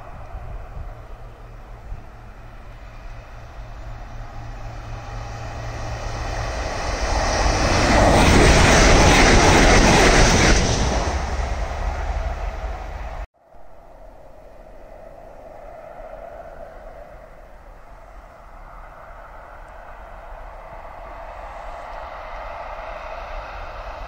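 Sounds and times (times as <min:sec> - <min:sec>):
train passing at speed: 0:00.0 - 0:24.0.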